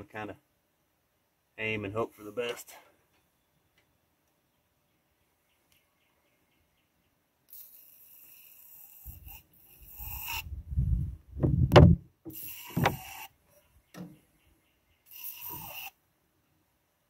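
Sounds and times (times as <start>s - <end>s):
aerosol spray hissing: 8.8s - 10.4s, 12.3s - 13.3s, 15.1s - 15.9s
low rumble: 10.4s - 12.1s
loud knock: 11.4s - 12.0s.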